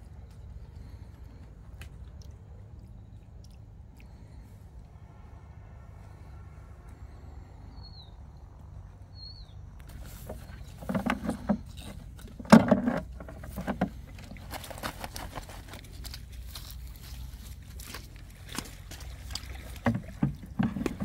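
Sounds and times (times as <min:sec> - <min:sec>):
low steady rumble: 0:00.0 - 0:21.0
rustling: 0:09.9 - 0:21.0.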